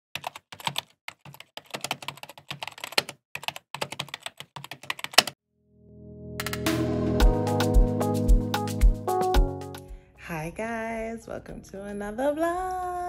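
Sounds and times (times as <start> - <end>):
keyboard typing clicks: 0.2 - 5.4
music: 5.8 - 13.0.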